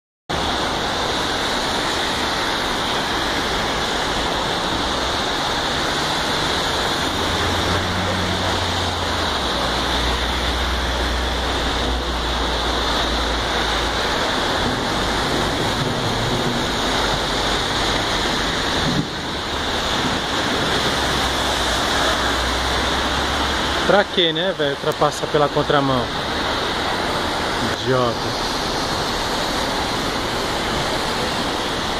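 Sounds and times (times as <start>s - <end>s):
heavy rain: 0.3s - 31.9s
tyres hissing through water: 0.3s - 31.9s
low vehicle rumble: 3.1s - 24.0s.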